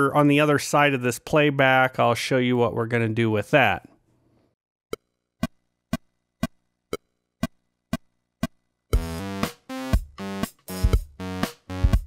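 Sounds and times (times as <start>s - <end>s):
synth and drum machine loops: 8.4s - 12.0s.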